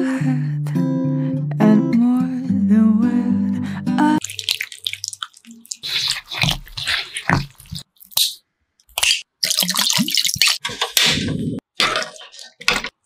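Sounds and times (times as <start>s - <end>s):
water sloshing in a pot: 4.2s - 8.0s, 11.8s - 13.0s
wet squishing and clicking: 4.2s - 10.6s.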